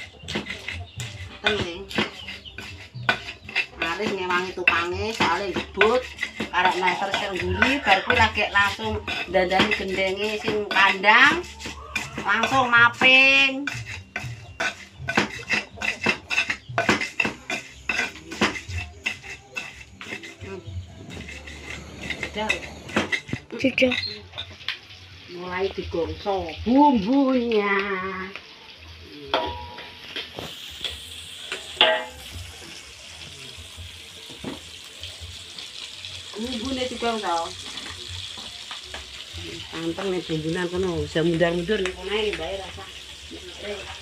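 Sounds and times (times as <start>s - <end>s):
pots and utensils knocking: 0.0s - 24.7s, 29.3s - 32.6s, 34.2s - 34.8s, 36.6s - 42.8s
spice paste sizzling in a wok: 0.0s - 44.0s
pestle pounding in mortar: 0.2s - 24.1s.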